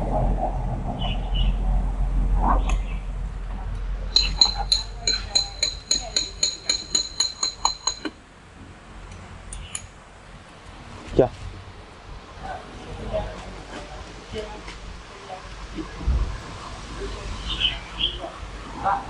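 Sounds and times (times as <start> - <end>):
low rumble: 0.0 - 5.0, 15.6 - 17.5.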